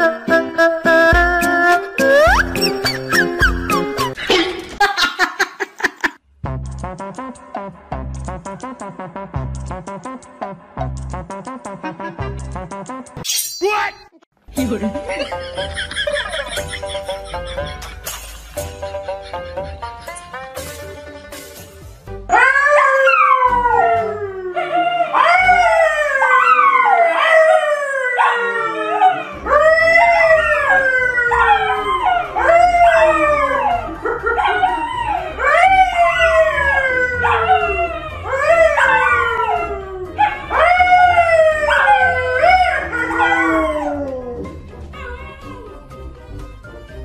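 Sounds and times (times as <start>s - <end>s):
dogs howling: 22.3s - 46.0s
man howling: 27.8s - 45.8s.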